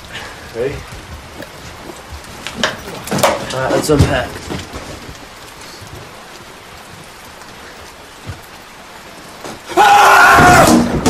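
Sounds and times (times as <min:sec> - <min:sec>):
steady hiss: 0:00.0 - 0:11.0
boy screaming: 0:09.7 - 0:10.8.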